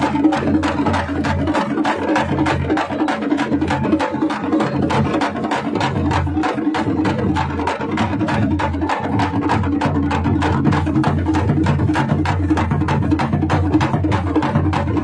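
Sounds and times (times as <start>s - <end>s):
frame drums beaten fast: 0.0s - 15.0s.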